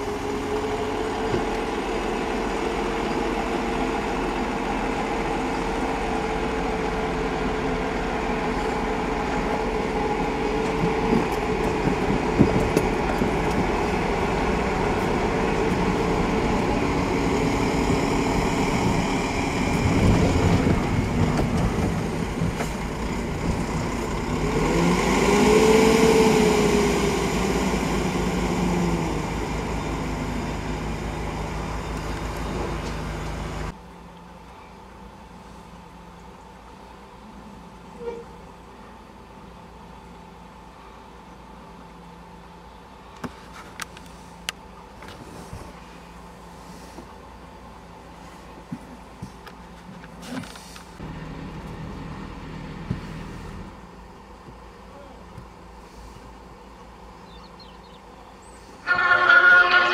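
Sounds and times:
steam locomotive running: 0.0s - 33.8s, 58.0s - 59.9s.

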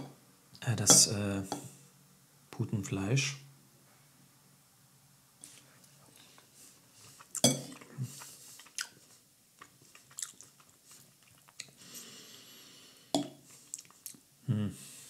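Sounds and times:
person chewing: 7.0s - 11.8s, 13.6s - 14.2s.

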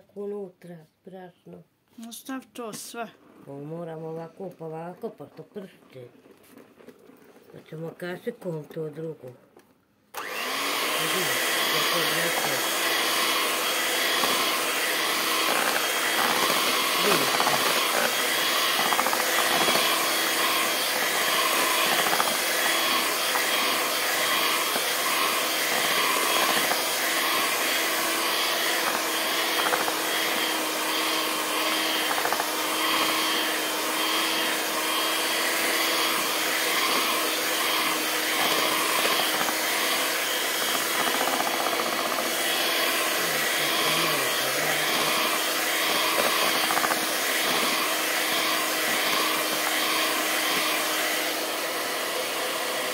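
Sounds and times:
electric hand mixer whisking batter: 10.1s - 52.9s.

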